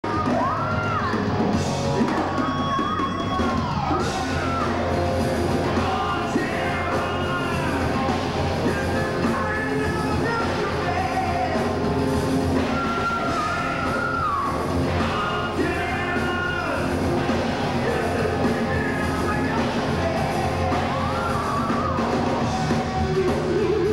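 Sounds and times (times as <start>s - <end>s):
heavy metal band playing live: 0.0s - 23.9s
man singing: 5.6s - 11.8s, 12.6s - 22.2s.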